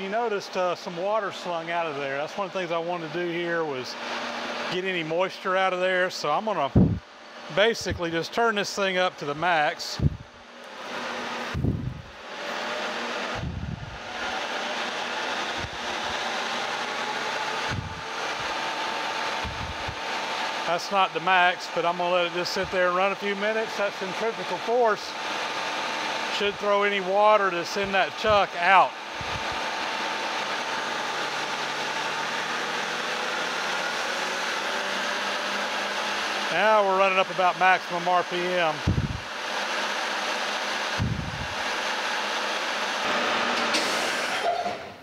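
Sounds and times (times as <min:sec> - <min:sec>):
lathe whirring: 0:00.0 - 0:45.0
low thumps: 0:06.8 - 0:07.0, 0:11.6 - 0:12.1.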